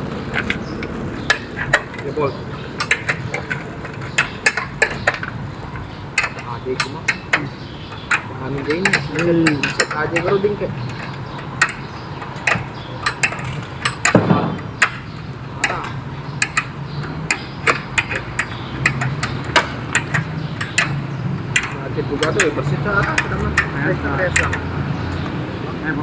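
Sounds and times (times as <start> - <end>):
metallic taps and knocks: 0.2 - 25.5
heavy thud: 14.0 - 14.8.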